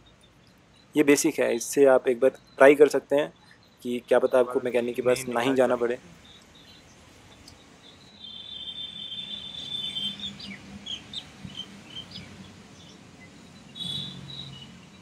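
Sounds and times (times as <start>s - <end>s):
bird whistling call: 8.0s - 12.3s, 13.7s - 14.7s.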